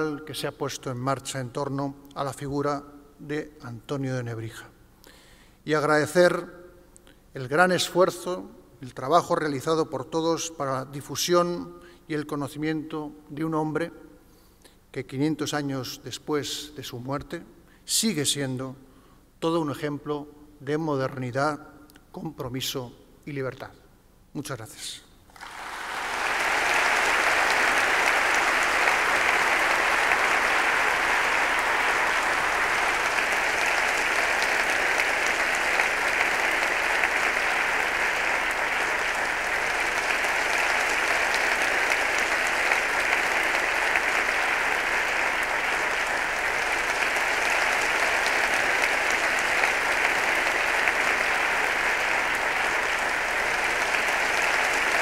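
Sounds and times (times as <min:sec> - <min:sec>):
audience applauding: 0:25.3 - 0:55.0.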